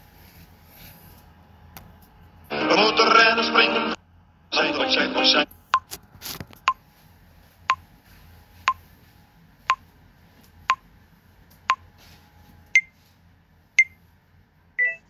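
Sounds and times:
short beep: 0:14.8 - 0:15.0.

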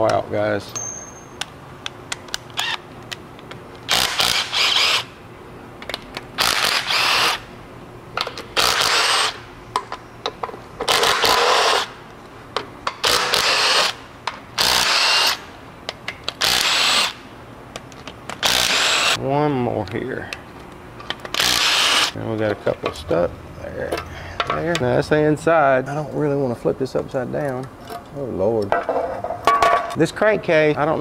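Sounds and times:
cordless power tool bursts: 0:03.9 - 0:05.1, 0:06.4 - 0:07.4, 0:08.6 - 0:09.4, 0:13.0 - 0:14.0, 0:14.6 - 0:15.4, 0:16.4 - 0:17.2, 0:18.4 - 0:19.2, 0:21.4 - 0:22.2.

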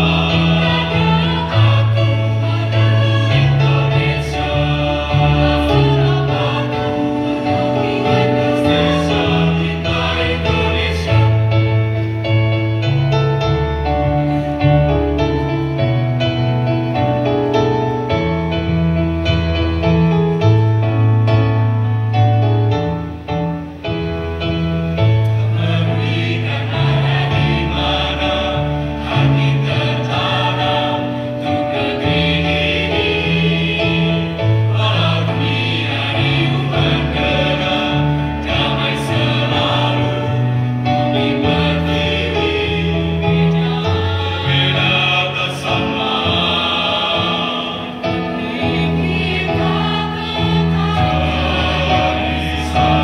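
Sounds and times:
mixed choir singing: 0:00.0 - 0:20.2, 0:24.6 - 0:53.0.

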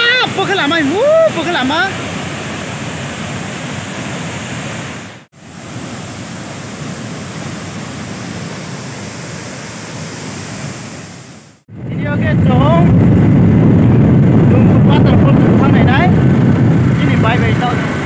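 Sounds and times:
waterfall rushing: 0:00.0 - 0:11.6.

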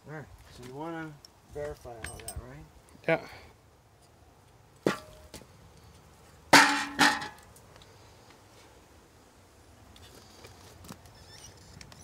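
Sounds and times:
sheet metal clanging: 0:06.6 - 0:07.4.

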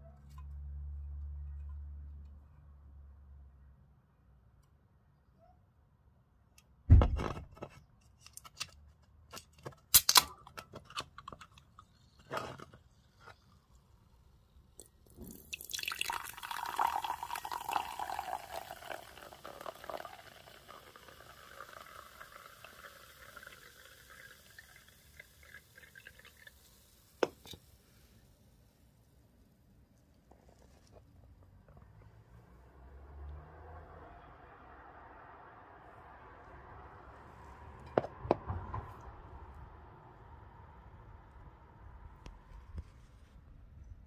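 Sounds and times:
can opening crack: 0:09.9 - 0:11.7
soda fizzing: 0:13.1 - 0:28.0
soda pouring into a glass: 0:14.8 - 0:27.6.

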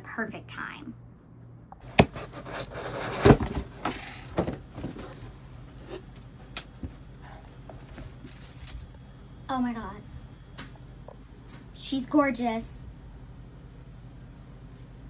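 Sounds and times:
cardboard box flaps rubbing: 0:01.8 - 0:05.8
plastic wrap rustling: 0:02.0 - 0:06.1, 0:07.8 - 0:08.9.

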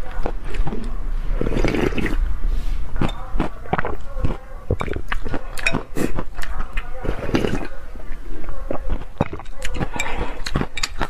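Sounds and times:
person slurping soup: 0:01.2 - 0:03.1.

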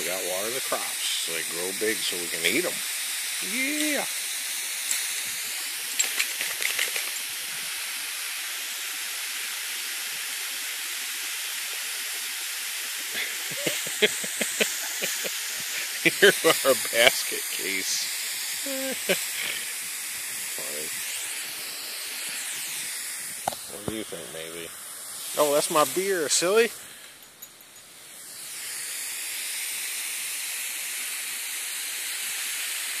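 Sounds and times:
hose nozzle spraying water: 0:00.0 - 0:33.0
short nozzle clicks: 0:04.8 - 0:07.3.

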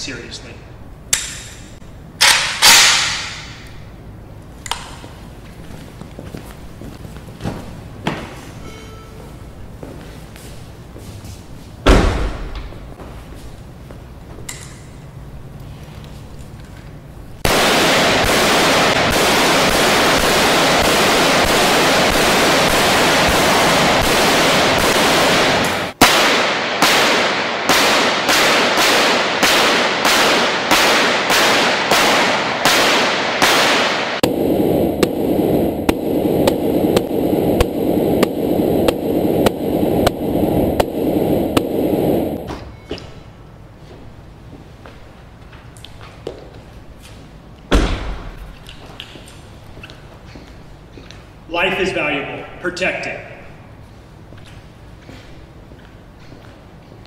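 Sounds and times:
rifle gunfire: 0:17.5 - 0:34.3.

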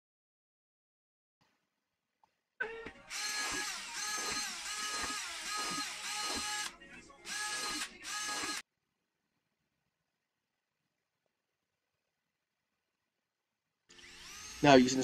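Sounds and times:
cordless drill motor whine: 0:03.1 - 0:08.6, 0:13.9 - 0:15.0.

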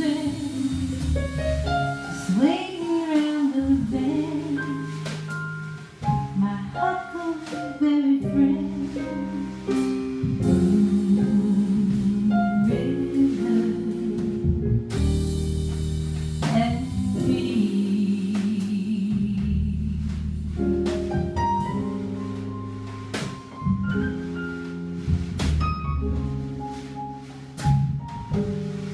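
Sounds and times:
woman singing jazz: 0:00.0 - 0:22.6
drum kit with cymbals: 0:00.0 - 0:28.9
upright double bass: 0:00.0 - 0:28.9.

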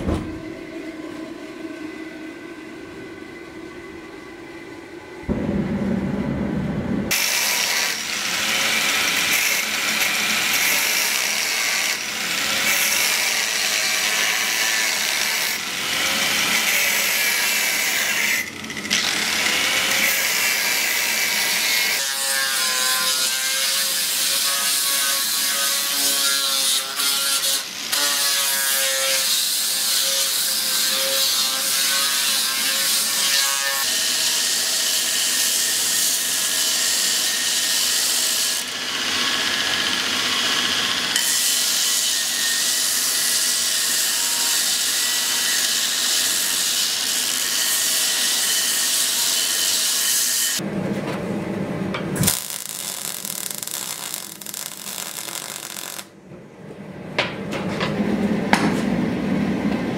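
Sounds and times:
forge burner roaring: 0:00.0 - 0:12.6, 0:50.6 - 0:59.9
angle grinder cutting steel: 0:07.1 - 0:50.6, 0:52.2 - 0:56.1.

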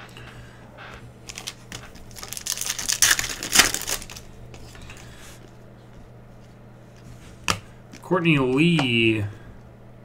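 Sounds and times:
foil wrapper crinkling: 0:01.2 - 0:05.5.

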